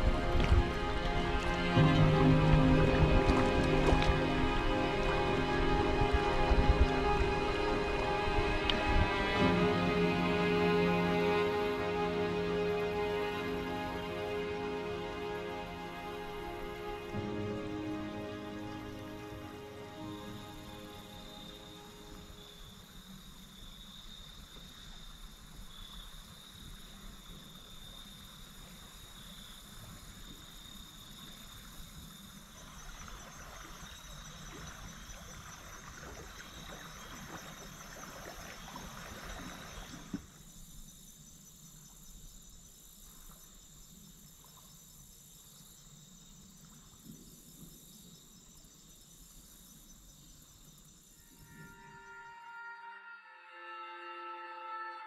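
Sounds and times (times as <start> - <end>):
insects trilling: 0.0 - 52.7.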